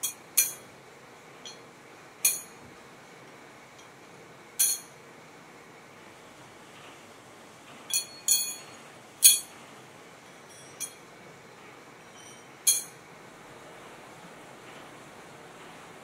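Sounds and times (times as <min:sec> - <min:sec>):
metal sprockets clinking: 0:07.9 - 0:09.5.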